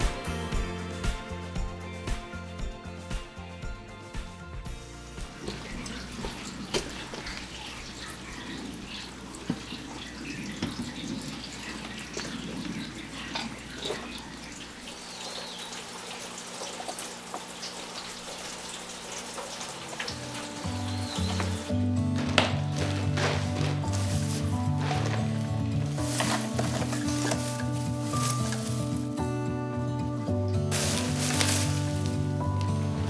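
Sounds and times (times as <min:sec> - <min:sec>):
background music: 0:00.0 - 0:07.4, 0:19.8 - 0:33.0
water running from tap: 0:05.1 - 0:29.4, 0:30.7 - 0:32.9.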